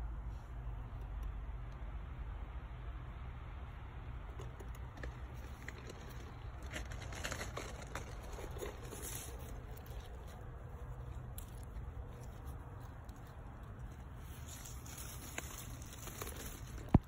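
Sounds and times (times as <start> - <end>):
plant leaves rustling: 4.9 - 17.0.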